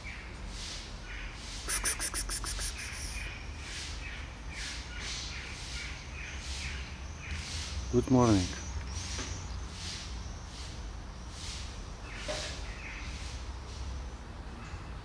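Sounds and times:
short high bird call: 1.6s - 3.4s
bird rattling chatter: 1.7s - 3.2s.

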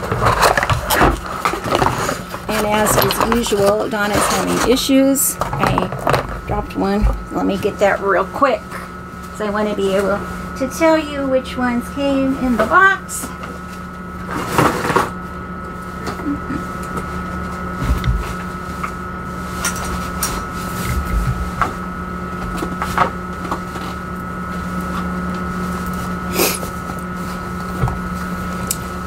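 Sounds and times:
steady hum: 0.0s - 29.0s.

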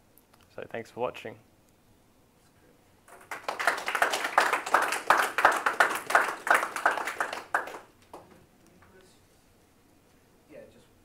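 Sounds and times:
audience clapping: 3.1s - 8.4s.

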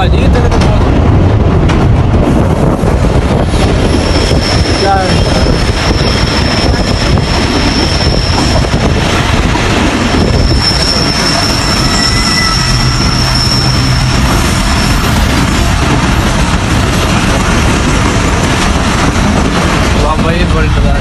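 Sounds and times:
train wheels rumbling on track: 0.0s - 21.0s
high wheel squeal: 3.7s - 9.0s, 10.1s - 15.4s.

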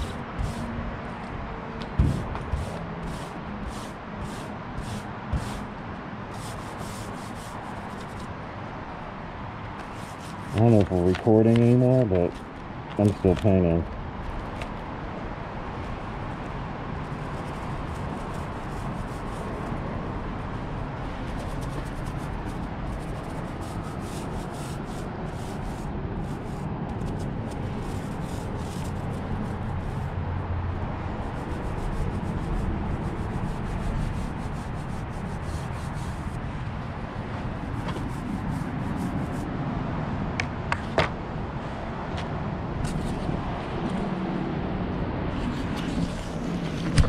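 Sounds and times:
paint roller swishing: 0.0s - 0.7s, 2.0s - 5.7s, 6.3s - 8.3s, 9.8s - 11.0s, 17.1s - 19.8s, 21.2s - 30.2s, 31.2s - 36.4s, 37.5s - 39.5s.

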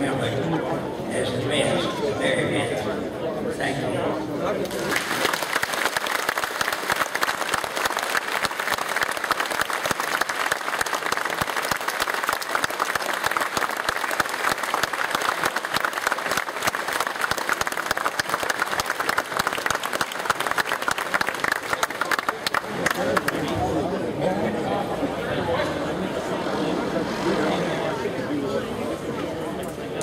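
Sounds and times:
large audience applauding: 4.7s - 23.6s.

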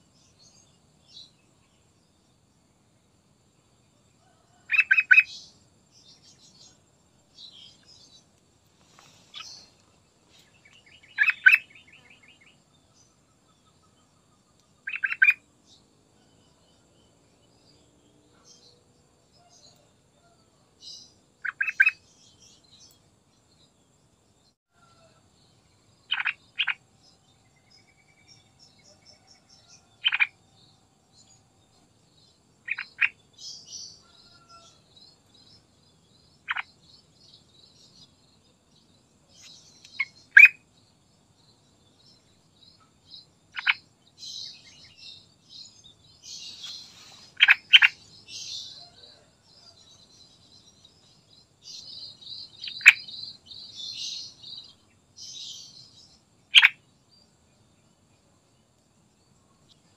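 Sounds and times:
faint high bird twittering: 7.4s - 15.8s, 42.6s - 50.9s.

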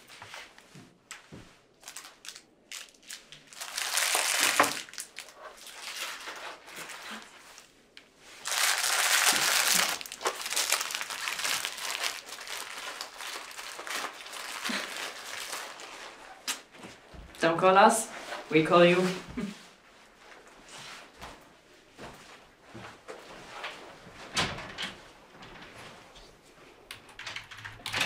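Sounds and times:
plastic-wrapped sweets crinkling: 1.7s - 16.7s.

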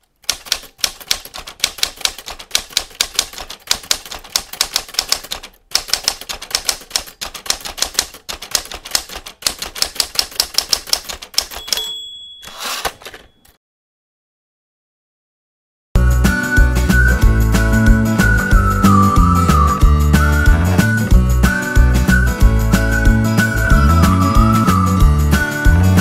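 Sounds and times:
typewriter keystroke clacks: 0.0s - 13.3s
typewriter bell ding: 11.4s - 13.6s.

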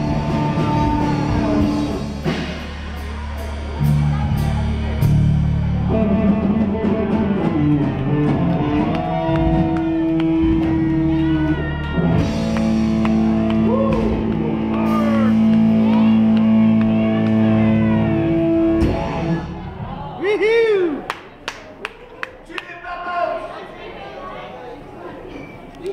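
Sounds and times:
electric guitar: 0.0s - 19.7s
drum kit: 0.0s - 20.2s.

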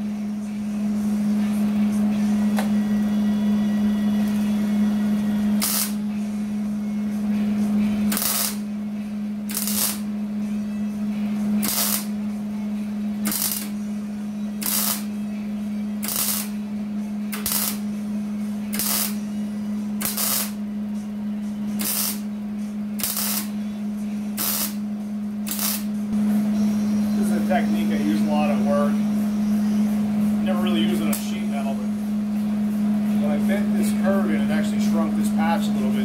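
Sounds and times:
steady low hum: 0.0s - 36.0s
short welding bursts: 5.6s - 6.0s, 8.1s - 8.6s, 9.5s - 10.0s, 11.6s - 12.1s, 13.3s - 13.7s, 14.6s - 15.1s, 16.0s - 16.5s, 17.4s - 17.8s, 18.7s - 19.2s, 20.0s - 20.6s, 21.8s - 22.2s, 23.0s - 23.5s, 24.4s - 24.8s, 25.5s - 25.9s.

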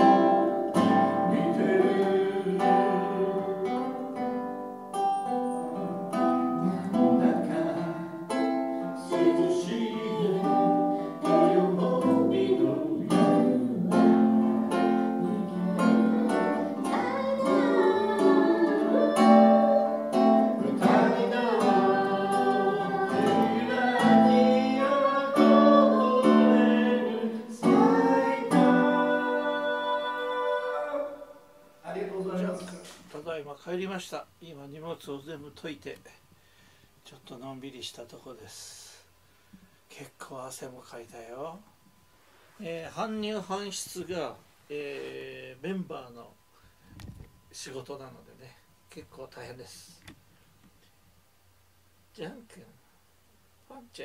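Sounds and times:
man singing folk song: 0.0s - 4.1s, 6.6s - 8.4s, 9.0s - 31.4s
strummed acoustic guitar: 0.0s - 31.1s.

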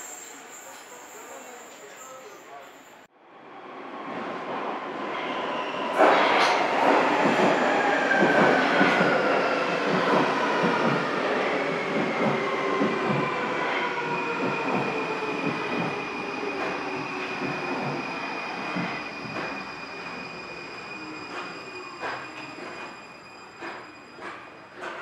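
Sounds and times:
train wheels rumbling: 6.0s - 25.0s.

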